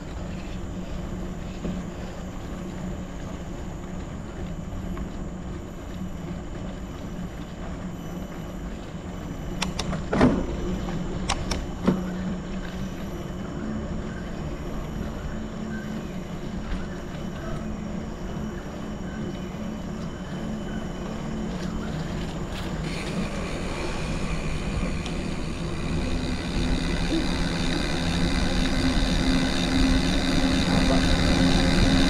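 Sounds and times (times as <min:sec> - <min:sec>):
bike tyres rolling on rough ground: 0:00.0 - 0:32.0
bike knocks and rattles: 0:09.6 - 0:12.2.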